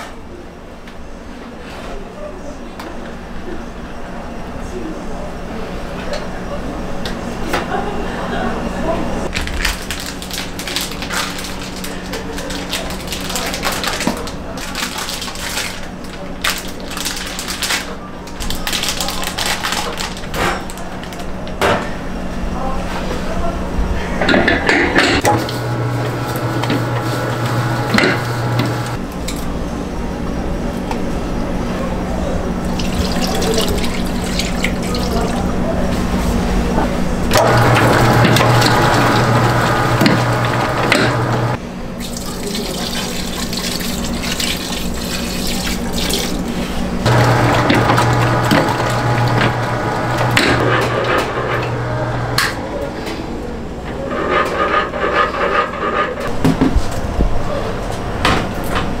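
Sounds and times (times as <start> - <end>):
droning hum with rattle: 5.5 - 42.6, 44.8 - 59.0
stand mixer motor humming: 25.2 - 29.0, 37.3 - 41.6, 47.1 - 52.6.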